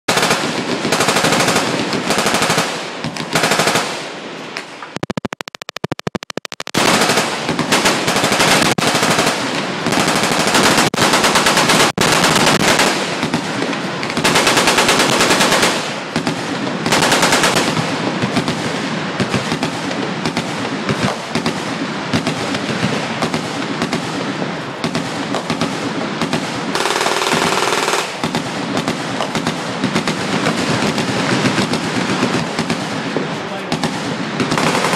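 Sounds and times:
machine gun bursts: 5.0 - 13.0, 34.5 - 34.9.

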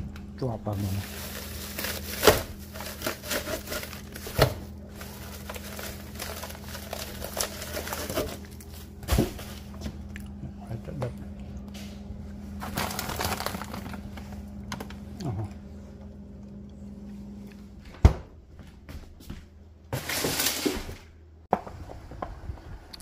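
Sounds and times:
fridge humming: 0.0 - 22.9
rustling and handling noises: 0.7 - 10.1, 11.0 - 15.9
fridge door thud: 2.1 - 4.7, 17.9 - 18.4.

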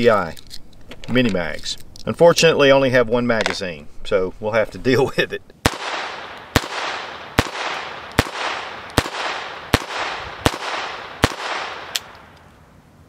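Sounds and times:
pistol shots echoing: 5.6 - 12.4.

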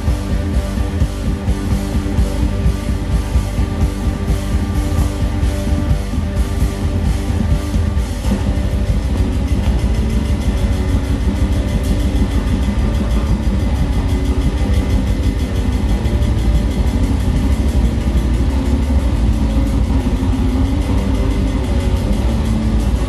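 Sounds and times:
bass guitar: 0.0 - 23.0
drum kit: 0.0 - 23.0
electric guitars: 0.0 - 23.0.

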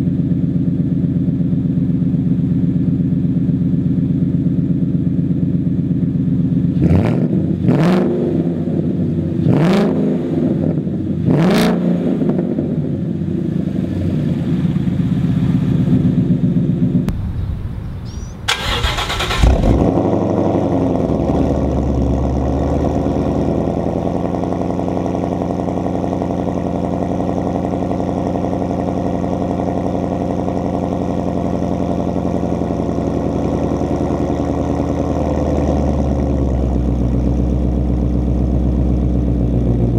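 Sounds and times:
car engine idling: 0.0 - 6.7, 13.1 - 39.9
car engine starting: 13.7 - 27.5
car engine revving: 17.1 - 24.6.

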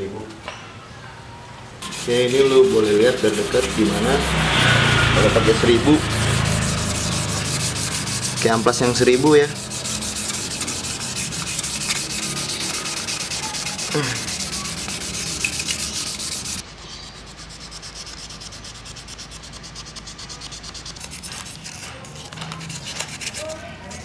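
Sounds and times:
sandpaper rubbing on metal: 1.8 - 24.0.

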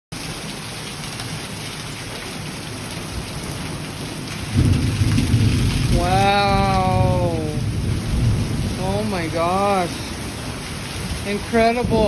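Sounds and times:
heavy rain pouring: 0.1 - 12.0
low rumble of thunder: 4.3 - 12.0.

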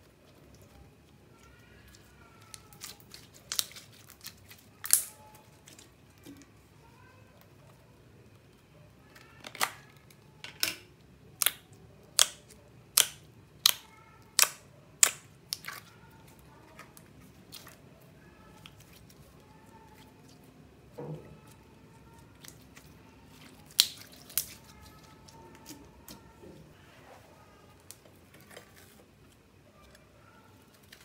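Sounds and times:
slime squish: 0.0 - 7.5, 11.3 - 26.5.

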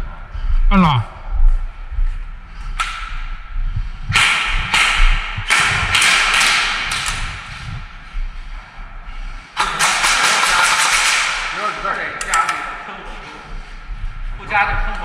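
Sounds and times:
indistinct voices: 0.0 - 1.3
airsoft rifles firing bursts: 9.6 - 11.6.

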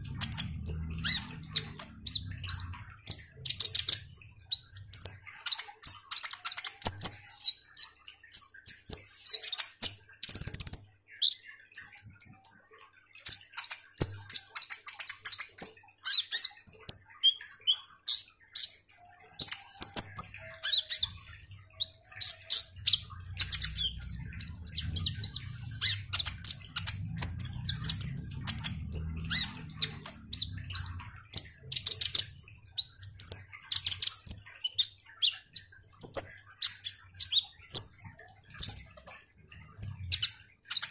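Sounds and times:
sunbird singing: 0.0 - 5.6, 19.7 - 40.9.

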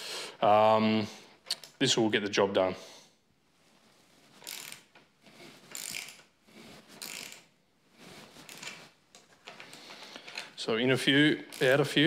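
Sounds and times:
ratcheting spanner clicking: 4.4 - 5.0, 5.7 - 6.3, 7.0 - 7.5, 11.5 - 12.0.

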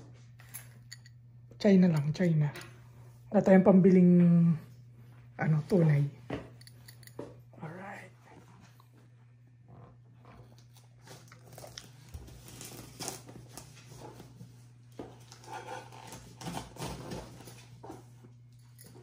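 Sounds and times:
steady low hum: 0.0 - 19.0
plastic wrap crinkling: 10.7 - 14.0.

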